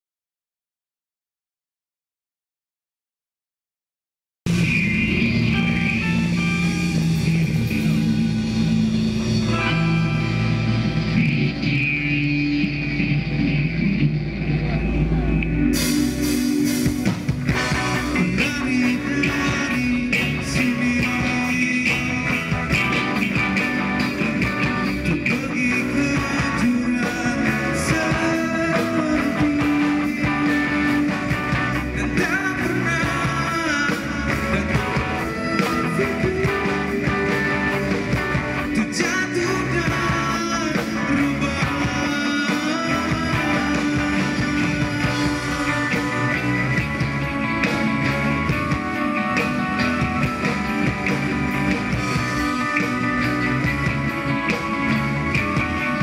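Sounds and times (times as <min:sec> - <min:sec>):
man singing: 0:04.5 - 0:08.4, 0:09.3 - 0:13.0, 0:17.6 - 0:23.7, 0:24.8 - 0:46.5
live rock band playing: 0:04.5 - 0:56.0.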